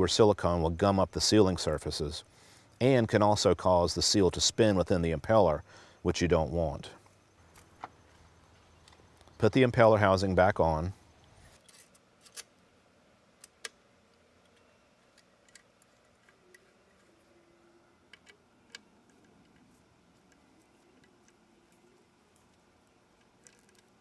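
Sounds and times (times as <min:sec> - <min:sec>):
sharp metal clicks and taps: 0:18.1 - 0:22.6.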